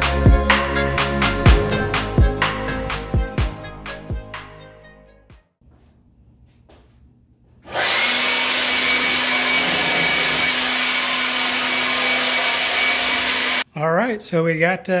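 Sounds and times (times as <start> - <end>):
leaf blower running: 7.7 - 13.6.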